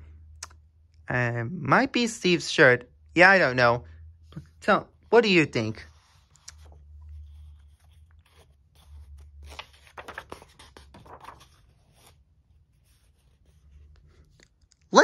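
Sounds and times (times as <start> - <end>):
paper pages rustling: 5.7 - 14.6.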